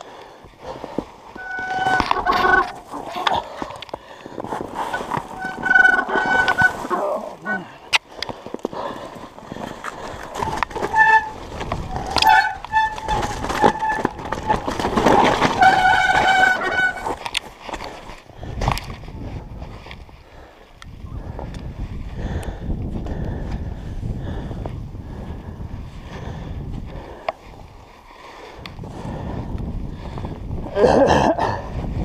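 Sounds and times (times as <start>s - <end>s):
bike rattling over bumps: 0.0s - 20.2s
bike tyres running through snow: 0.0s - 30.8s
brakes squealing: 1.3s - 3.5s, 4.6s - 7.8s, 10.2s - 17.3s.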